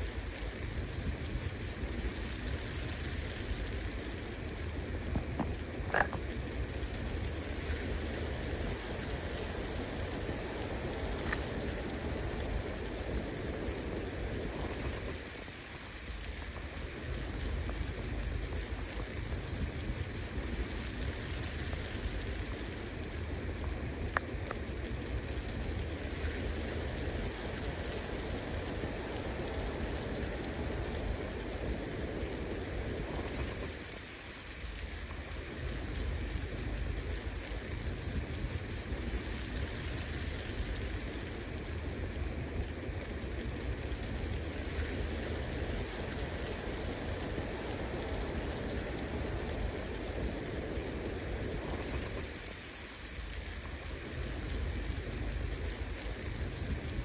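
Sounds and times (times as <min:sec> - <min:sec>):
wind and falling snow hiss: 0:00.0 - 0:57.0
wind rumbling on microphone: 0:00.0 - 0:57.0
faint clicks: 0:24.0 - 0:24.6.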